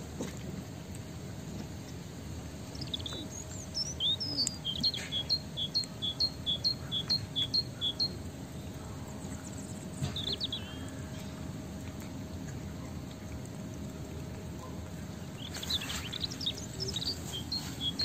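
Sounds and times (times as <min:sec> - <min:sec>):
bird chirps: 0:02.7 - 0:08.2, 0:10.0 - 0:10.9, 0:15.4 - 0:18.0.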